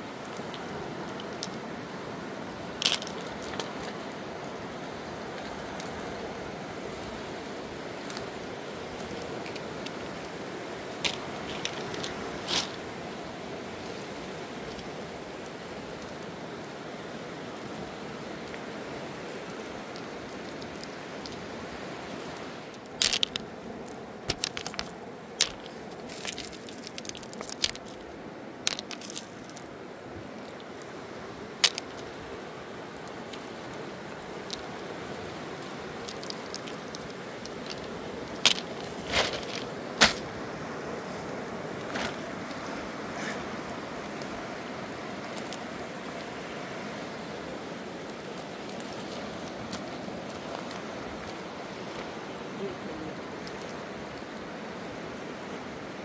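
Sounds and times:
river rushing: 0:00.0 - 0:56.0
pebbles knocking together: 0:02.8 - 0:03.8, 0:11.0 - 0:12.8, 0:22.7 - 0:28.0, 0:28.6 - 0:29.7, 0:31.6 - 0:32.1, 0:33.4 - 0:40.3.

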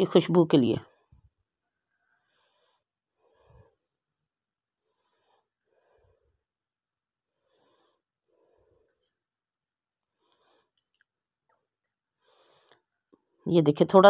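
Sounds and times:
soft breath-like puffs: 0:00.8 - 0:09.5, 0:10.1 - 0:11.1, 0:12.0 - 0:13.4.

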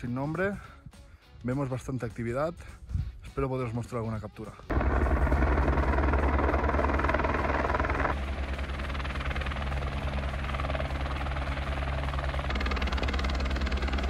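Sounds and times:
helicopter rotor chopping: 0:04.7 - 0:14.0.

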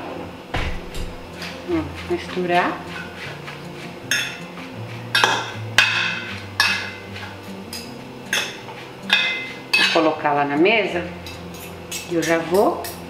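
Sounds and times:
metal utensils clinking on steel bowl: 0:04.1 - 0:04.5, 0:05.1 - 0:10.2, 0:11.2 - 0:13.0.

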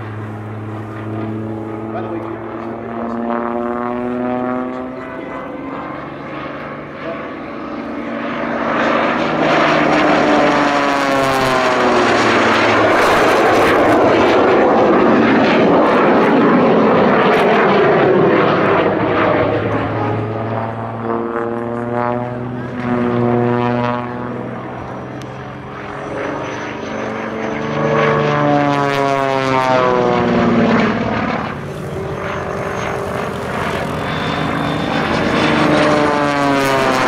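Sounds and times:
propeller airplane flying past: 0:00.0 - 0:37.0.

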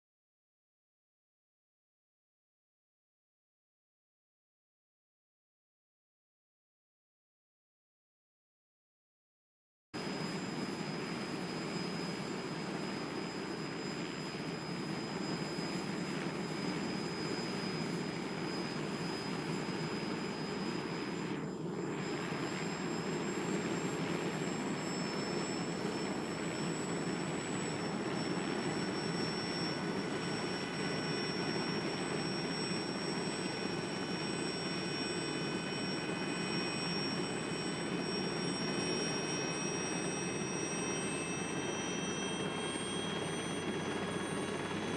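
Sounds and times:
high whining tones: 0:10.0 - 0:44.9
jet engine running: 0:10.0 - 0:44.9.

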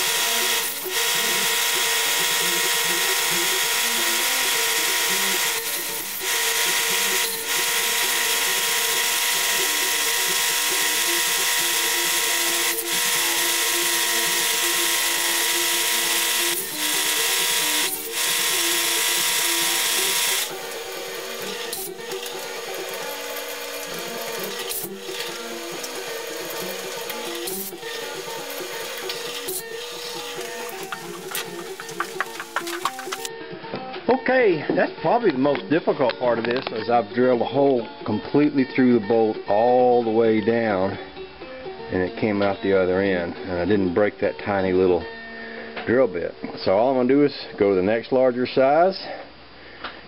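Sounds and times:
drill press whine: 0:00.0 - 0:33.3.

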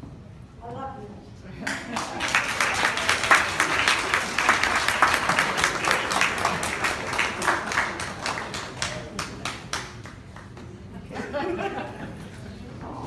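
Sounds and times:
people clapping: 0:01.6 - 0:11.7.

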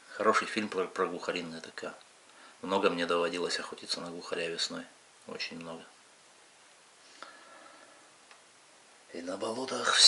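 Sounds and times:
faint click: 0:08.2 - 0:08.5.

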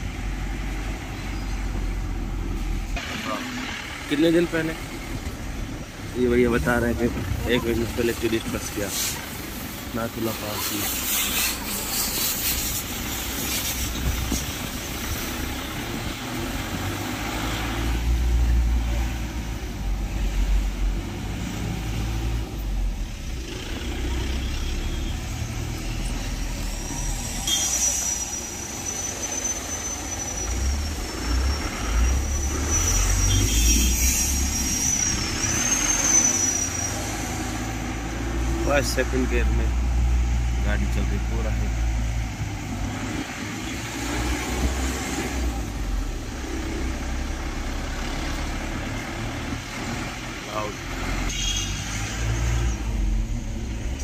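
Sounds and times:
car engine and road noise: 0:00.0 - 0:54.0
thin high whistle: 0:24.9 - 0:37.5.

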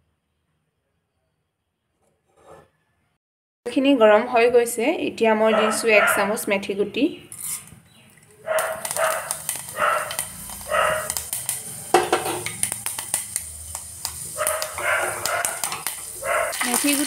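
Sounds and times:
dog barking: 0:05.5 - 0:06.3, 0:08.4 - 0:11.1, 0:14.4 - 0:16.6
seeds sizzling and popping in oil: 0:07.3 - 0:17.0.

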